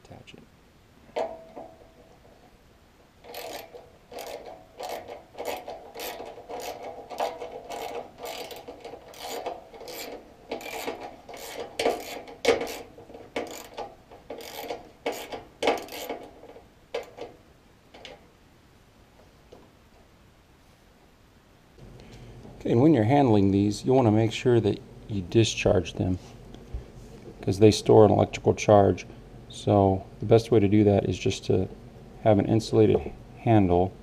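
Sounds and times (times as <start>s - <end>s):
screwdriver rasping on screw: 3.3s - 16.3s.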